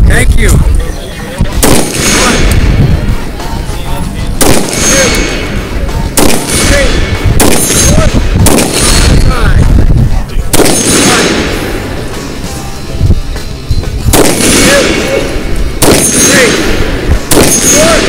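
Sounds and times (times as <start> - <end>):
rifle shots: 1.6 - 2.8, 4.4 - 5.6, 6.2 - 9.3, 10.5 - 11.9, 14.1 - 18.0.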